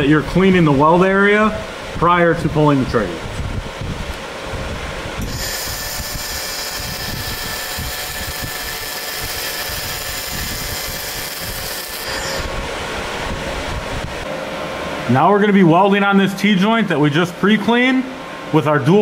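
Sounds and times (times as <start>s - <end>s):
laser welder hissing: 5.2s - 12.5s.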